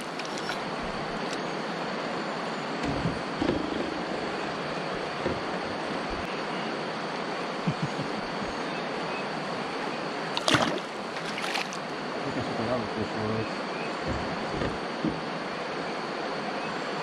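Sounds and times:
river water rushing: 0:00.0 - 0:12.7
fish splashing into water: 0:10.3 - 0:11.9.

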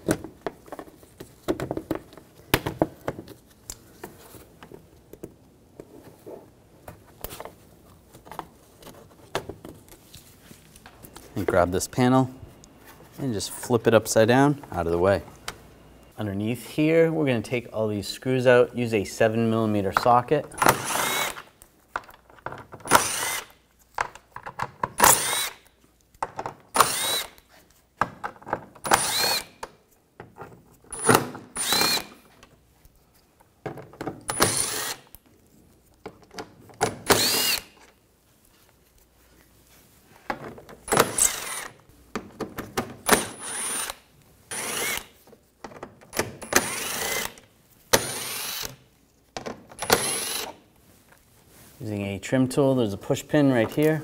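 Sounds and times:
cordless power driver whirring: 0:20.7 - 0:21.4, 0:22.9 - 0:23.5, 0:25.0 - 0:25.6, 0:26.8 - 0:27.4, 0:28.9 - 0:29.5, 0:31.0 - 0:32.2, 0:34.3 - 0:35.1, 0:37.0 - 0:37.8, 0:40.9 - 0:41.7, 0:43.1 - 0:45.1, 0:46.5 - 0:47.4, 0:48.0 - 0:48.8, 0:49.8 - 0:50.6.

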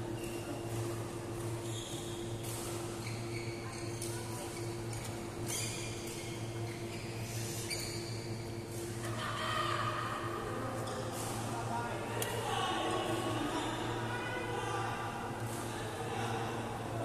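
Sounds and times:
shoes squeaking on court: 0:00.1 - 0:08.9.

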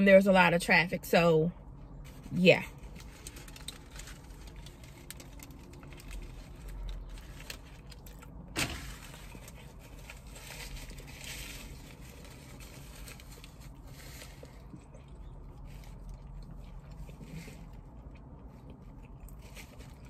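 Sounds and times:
paper rustling and crinkling: 0:02.8 - 0:14.6
chewing and mouth sounds: 0:13.3 - 0:20.0.

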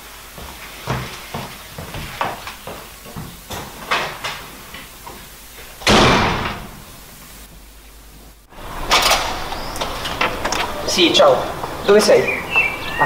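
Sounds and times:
footsteps in hallway: 0:00.0 - 0:06.5
wooden door slamming: 0:05.8 - 0:06.9.

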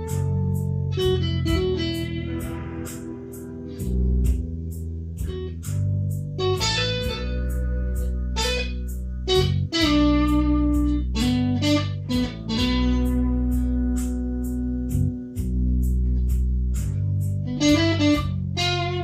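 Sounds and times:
bass line: 0:00.0 - 0:19.0
ticking beat: 0:00.0 - 0:19.0
overdriven electric guitar lead: 0:00.9 - 0:04.6.

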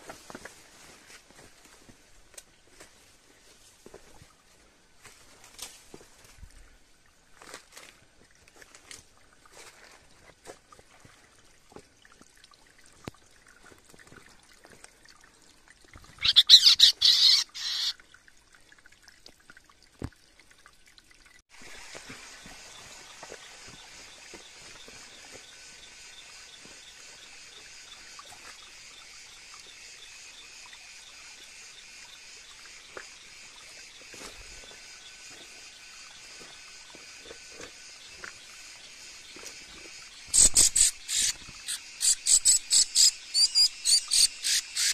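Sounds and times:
loud bird calls: 0:16.2 - 0:18.0, 0:40.3 - 0:44.9
insect chorus droning: 0:21.5 - 0:44.9.

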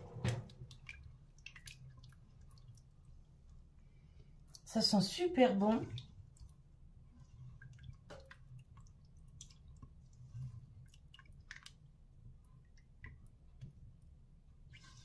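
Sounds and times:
spatula stirring creamy sauce: 0:00.6 - 0:03.6, 0:05.6 - 0:15.0.

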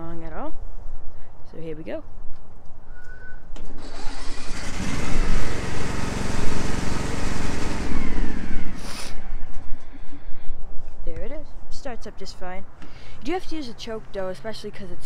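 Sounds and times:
electric starter cranking: 0:03.6 - 0:09.5
lawnmower engine running: 0:03.7 - 0:09.4.

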